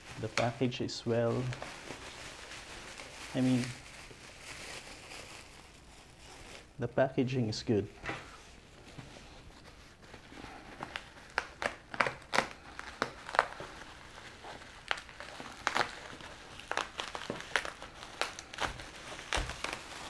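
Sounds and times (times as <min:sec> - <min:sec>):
packaging crinkling and rustling: 0:00.0 - 0:06.8, 0:07.6 - 0:20.0.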